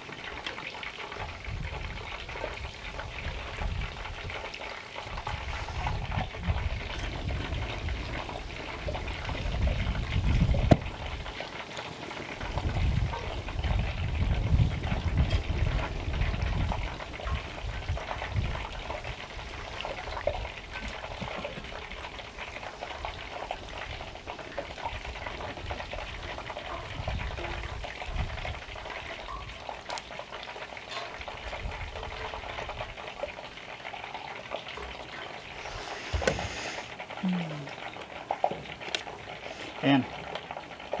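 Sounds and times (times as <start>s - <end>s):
deep-frying sizzle with pops: 0.0s - 41.0s
wind buffeting microphone: 1.2s - 11.4s, 12.4s - 29.8s, 31.2s - 33.1s.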